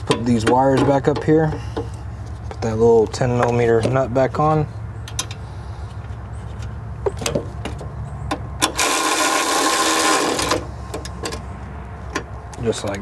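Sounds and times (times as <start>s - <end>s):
electric ratchet motor running: 8.7s - 10.6s.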